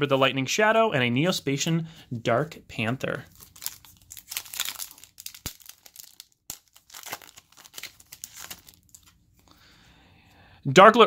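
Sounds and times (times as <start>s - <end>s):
foil wrapper tearing and crinkling: 3.3s - 9.2s.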